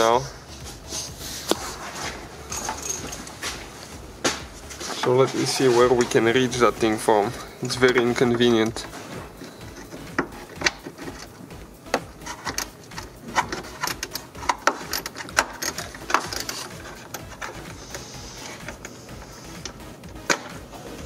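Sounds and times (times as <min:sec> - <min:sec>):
hand ratchet clicking: 0:09.4 - 0:18.9.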